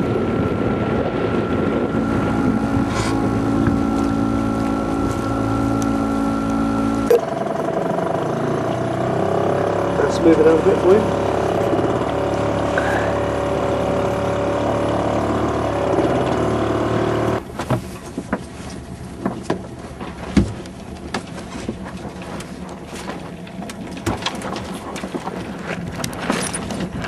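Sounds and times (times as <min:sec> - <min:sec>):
boat engine running: 0:00.0 - 0:27.0
knocks and clicks of gear: 0:17.2 - 0:27.0.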